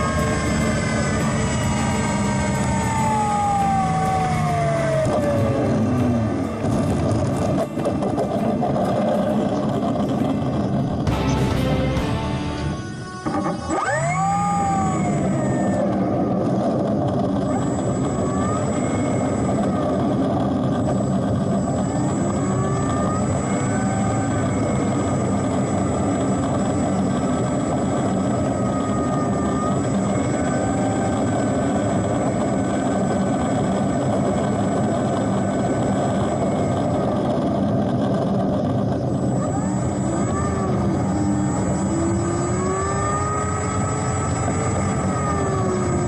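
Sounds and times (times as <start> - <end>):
model plane motor buzz: 0.0 - 10.7
thin high whine: 0.0 - 16.2.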